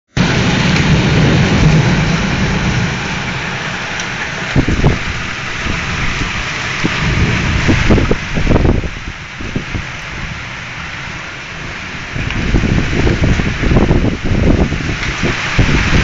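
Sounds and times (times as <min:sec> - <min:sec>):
deep rumble: 0:00.1 - 0:16.0
torrential rain pouring: 0:00.1 - 0:16.0
low buffeting thumps: 0:00.2 - 0:10.5.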